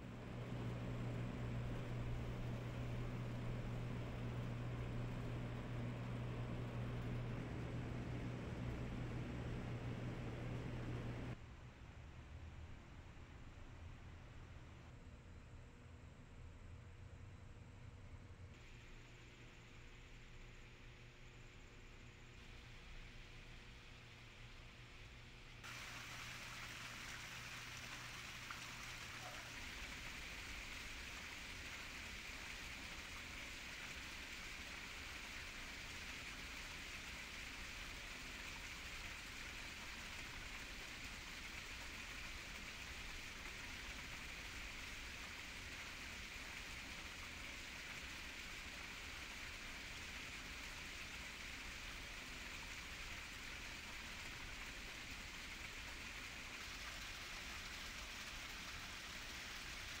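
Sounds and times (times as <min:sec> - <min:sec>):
waterfall splashing into pond: 0:25.6 - 1:00.0.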